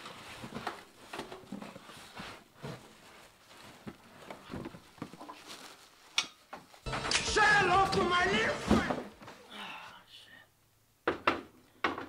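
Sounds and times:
plastic wrapping crinkling: 2.0s - 8.9s.

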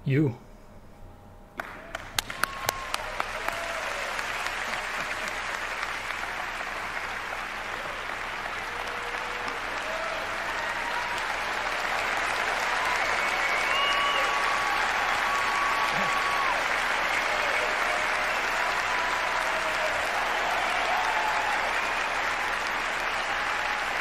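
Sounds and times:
crowd applause: 1.6s - 24.0s
crowd calling out: 7.8s - 24.0s.

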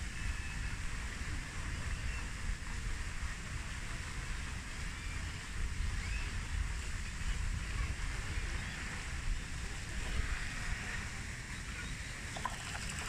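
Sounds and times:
steady outdoor hiss: 0.0s - 13.0s
faint bird chirps: 11.5s - 13.0s.

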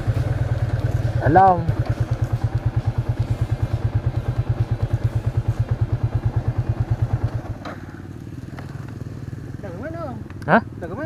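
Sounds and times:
low engine hum: 0.0s - 11.0s
motorcycle engine idling: 0.0s - 11.0s.

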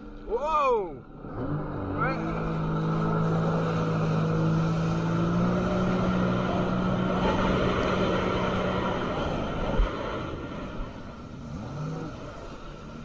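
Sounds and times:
jet ski engine running: 0.0s - 13.0s
wind rushing: 2.6s - 12.3s.

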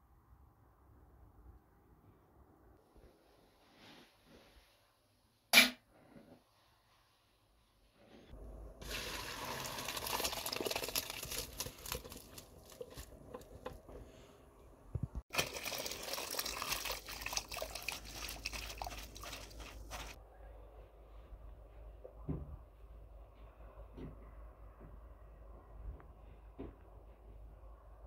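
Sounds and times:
water splashing into basin: 8.8s - 13.1s, 15.3s - 20.2s
water pouring into colander: 8.8s - 13.4s, 15.3s - 20.2s.

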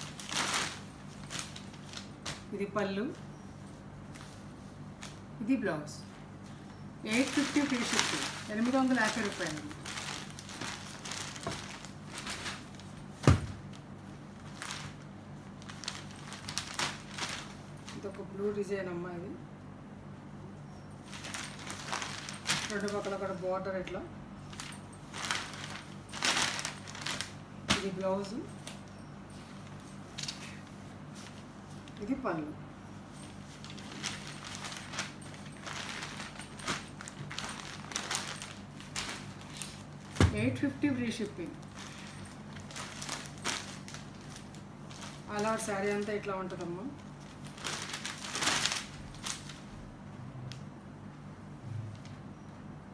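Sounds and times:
steady low hum: 0.0s - 52.9s
cloth rustling: 6.1s - 18.6s, 21.0s - 23.8s, 24.4s - 32.2s, 32.8s - 49.7s
cloth rustling and swishing: 6.4s - 13.7s.

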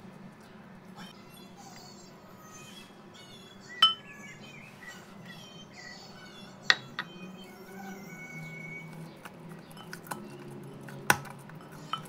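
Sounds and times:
faint high chirping: 0.4s - 12.0s
glass bowl clinking: 3.8s - 4.1s, 11.6s - 12.0s.

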